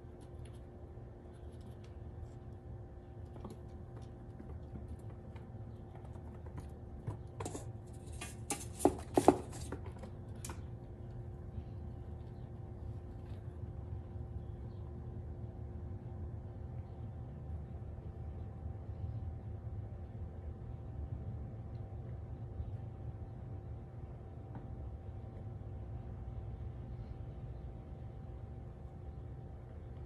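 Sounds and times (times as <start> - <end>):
squirrel cracking peanut shell: 0.0 - 6.7.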